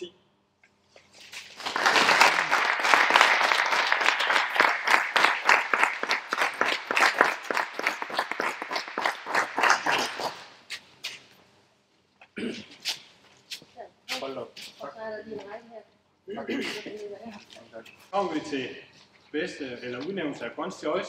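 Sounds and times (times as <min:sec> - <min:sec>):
audience applauding: 0:01.4 - 0:10.7.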